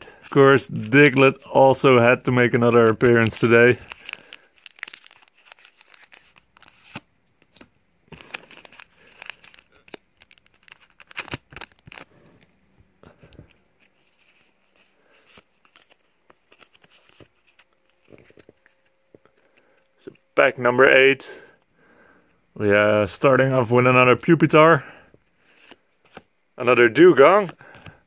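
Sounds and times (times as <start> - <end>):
foil wrapper tearing and crinkling: 2.8 - 7.0, 8.1 - 12.2.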